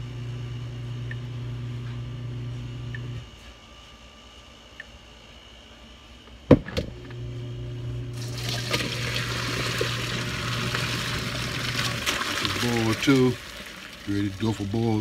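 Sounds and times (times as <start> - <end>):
low steady hum: 0.0 - 15.0
water poured into a sink: 8.2 - 15.0.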